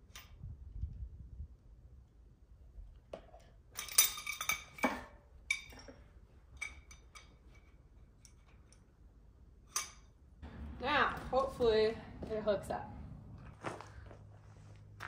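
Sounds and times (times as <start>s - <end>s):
metal fittings clinking: 3.7s - 9.0s, 9.6s - 10.2s.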